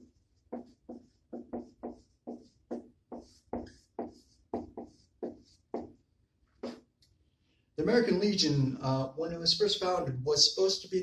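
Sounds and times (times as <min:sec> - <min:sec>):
felt tip swishing on whiteboard: 0:00.0 - 0:06.0
marker tapping on whiteboard: 0:00.3 - 0:06.0, 0:06.6 - 0:06.9.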